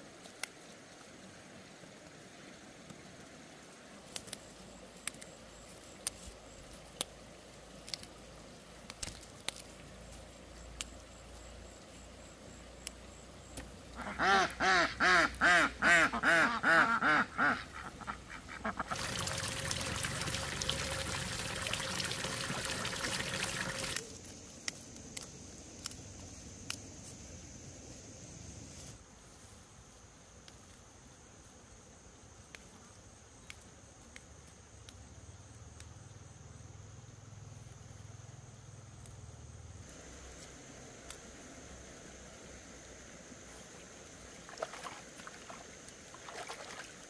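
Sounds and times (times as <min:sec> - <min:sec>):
ducks quacking: 0:14.0 - 0:19.2.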